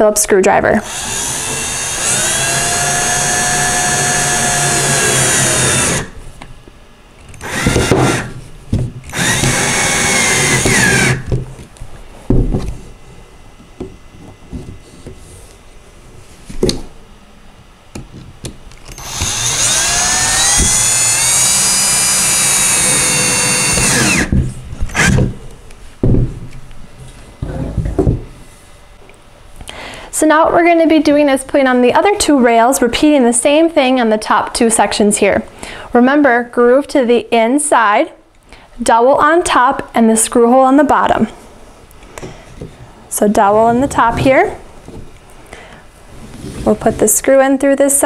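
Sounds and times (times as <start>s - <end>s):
cordless drill driving screws: 0.8s - 6.1s, 7.3s - 8.4s, 9.1s - 11.3s, 18.9s - 24.3s, 24.9s - 25.2s.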